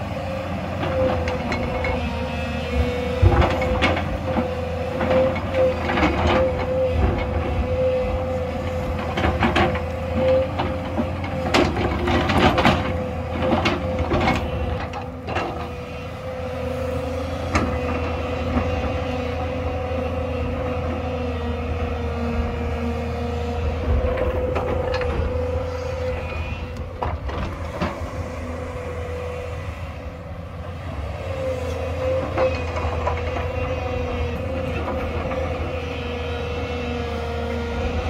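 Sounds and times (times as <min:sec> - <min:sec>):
excavator diesel engine whining: 0:00.0 - 0:38.0.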